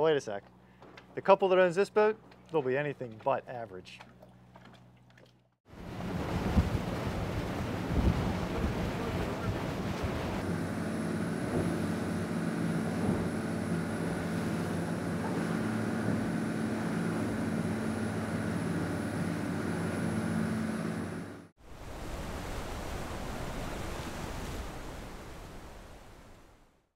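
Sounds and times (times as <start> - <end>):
boat engines droning: 0.0 - 21.5
rush of wind and water: 5.7 - 26.6.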